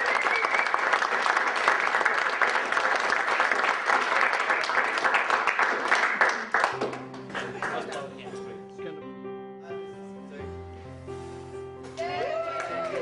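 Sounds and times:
audience applauding: 0:00.0 - 0:08.2, 0:12.0 - 0:13.0.

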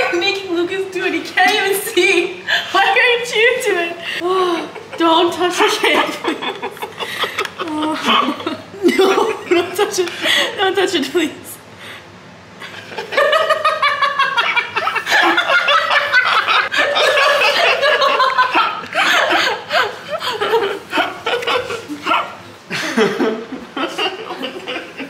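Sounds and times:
people laughing hard: 0:04.2 - 0:10.6, 0:12.6 - 0:25.0.

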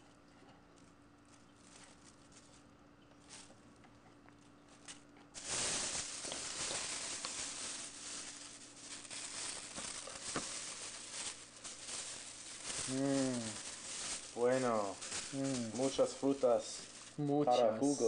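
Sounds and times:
plastic bag crinkling: 0:00.8 - 0:18.0.

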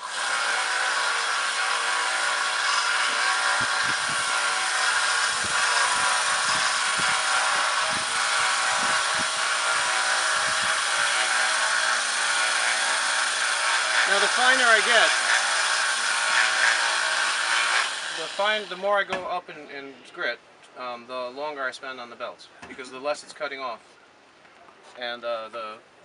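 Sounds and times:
grinder motor hum: 0:00.0 - 0:18.5
belt grinder grinding metal: 0:00.0 - 0:18.8.

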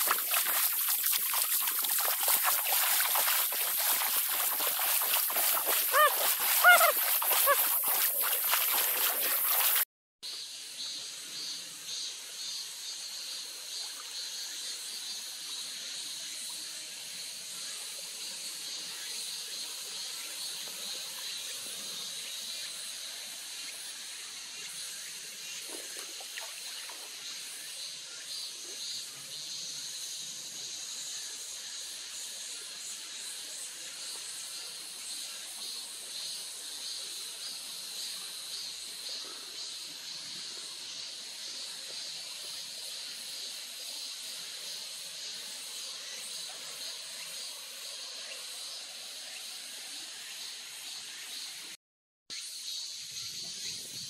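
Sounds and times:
water trickling over stones: 0:00.0 - 0:09.8.

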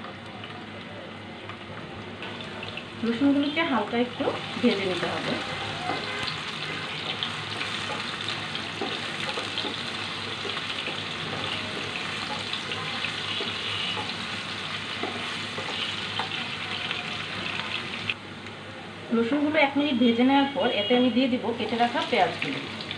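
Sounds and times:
garlic sizzling in oil: 0:01.4 - 0:18.2, 0:21.2 - 0:22.9.

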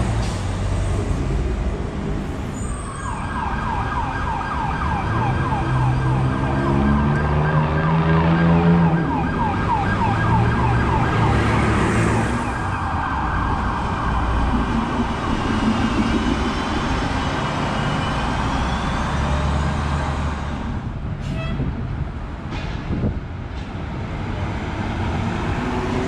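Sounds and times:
bus engine and road noise: 0:00.0 - 0:26.0
emergency vehicle siren wailing: 0:02.6 - 0:19.6.

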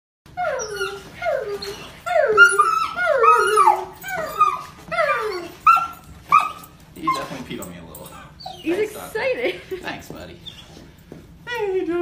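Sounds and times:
dog whining and whimpering: 0:00.3 - 0:09.1, 0:10.4 - 0:10.9.

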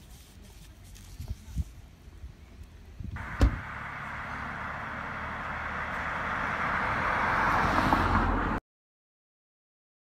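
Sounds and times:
car approaching: 0:03.2 - 0:08.6.

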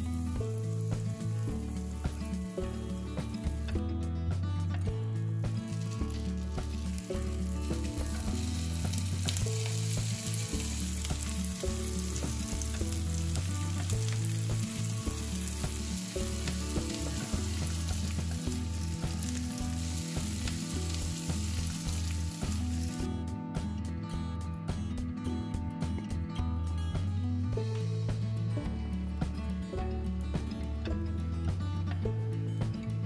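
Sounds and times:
food sizzling in a frying pan: 0:00.0 - 0:03.7, 0:05.4 - 0:23.1
light background music: 0:00.0 - 0:33.0.

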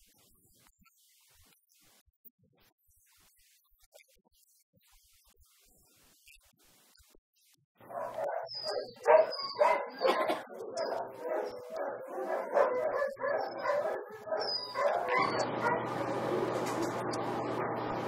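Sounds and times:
dogs barking: 0:07.8 - 0:18.0
dog whining: 0:07.9 - 0:16.5
steady low hum: 0:10.3 - 0:18.0.

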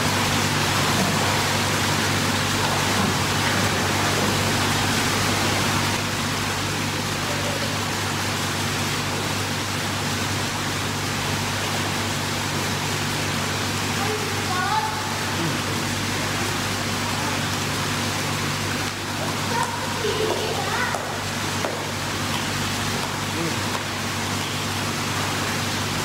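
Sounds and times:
pool water rushing: 0:00.0 - 0:26.0.

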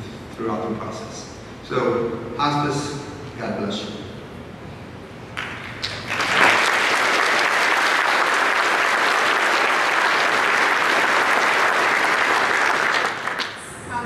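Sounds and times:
audience applauding: 0:05.4 - 0:13.7.

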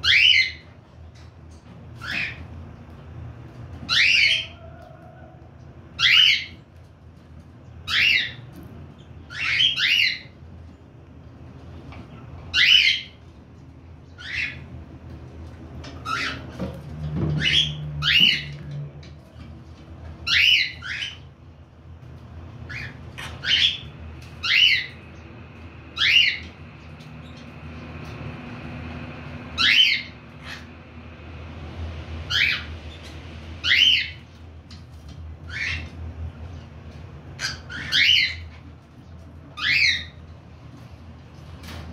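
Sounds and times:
cockatiels calling: 0:00.0 - 0:01.3, 0:02.0 - 0:02.6, 0:03.8 - 0:05.1, 0:05.9 - 0:06.6, 0:07.8 - 0:10.4, 0:12.2 - 0:13.3, 0:14.1 - 0:14.7, 0:15.8 - 0:18.7, 0:20.2 - 0:21.4, 0:22.6 - 0:25.0, 0:25.9 - 0:28.2, 0:29.5 - 0:30.8, 0:32.2 - 0:36.6, 0:37.3 - 0:40.3.

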